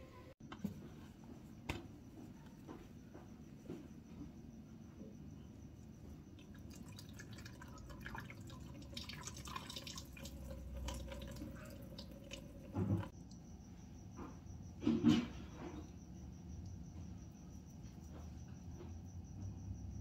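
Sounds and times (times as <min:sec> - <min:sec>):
whey dripping and trickling: 0:06.4 - 0:13.5.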